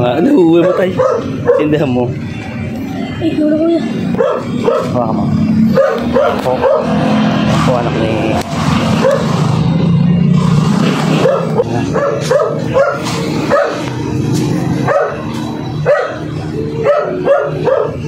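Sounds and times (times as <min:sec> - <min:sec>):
dog yipping: 0:00.5 - 0:01.8, 0:04.1 - 0:05.0, 0:05.7 - 0:07.0, 0:09.0 - 0:09.4, 0:11.2 - 0:13.9, 0:14.8 - 0:18.0.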